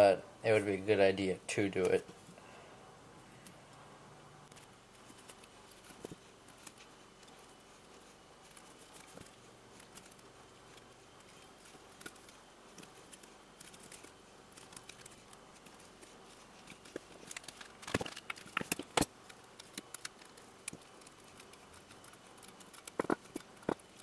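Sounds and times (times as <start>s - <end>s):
tape crackles and taps: 11.9s - 24.0s.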